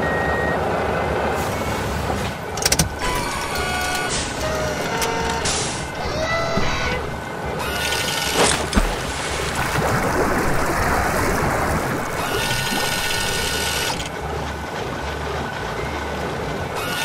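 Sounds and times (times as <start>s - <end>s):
cartoon water splashing: 3.4s - 14.1s.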